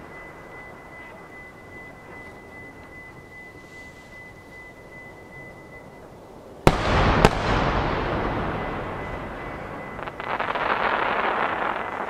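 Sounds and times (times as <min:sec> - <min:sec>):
rolling echo: 0:04.3 - 0:12.0
firework shells booming: 0:06.6 - 0:12.0
firework crackling: 0:06.7 - 0:12.0.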